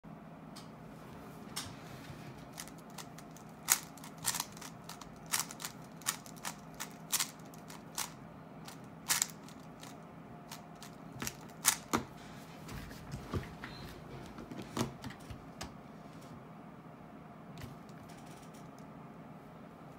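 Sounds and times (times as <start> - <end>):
puzzle cube layers clacking: 2.6 - 12.0.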